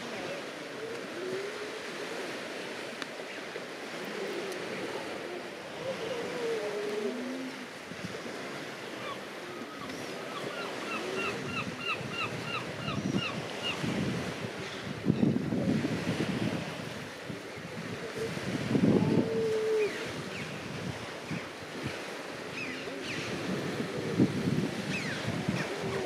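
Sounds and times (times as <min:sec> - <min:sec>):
seals moaning: 0:00.0 - 0:02.5, 0:03.7 - 0:13.5, 0:17.6 - 0:20.3, 0:21.7 - 0:26.0
surf: 0:00.0 - 0:26.0
wind: 0:00.0 - 0:26.0.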